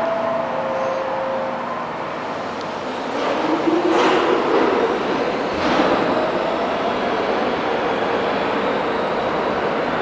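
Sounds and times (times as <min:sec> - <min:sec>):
subway train rumbling on rails: 0:00.0 - 0:10.0.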